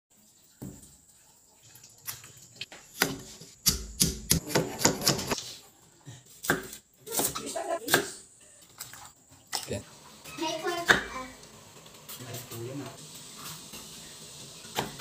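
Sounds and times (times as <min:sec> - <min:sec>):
cleaver chopping on wooden block: 0:03.0 - 0:05.4.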